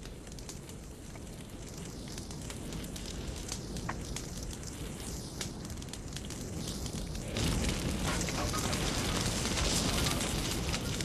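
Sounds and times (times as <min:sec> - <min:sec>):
crackles and pops of burning timber: 0:00.0 - 0:11.0
fire rushing: 0:00.0 - 0:11.0.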